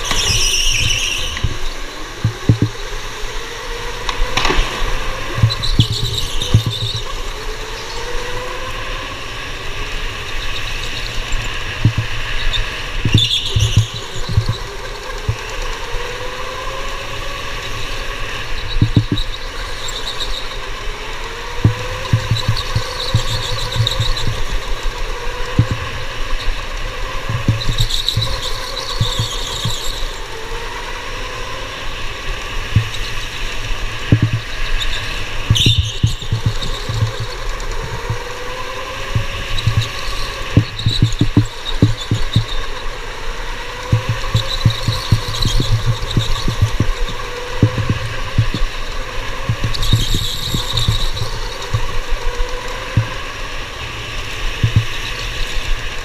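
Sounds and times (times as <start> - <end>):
electric go-kart motor whining: 0.0 - 56.0
tyres squealing: 34.1 - 38.4
short low thumps: 43.9 - 48.7.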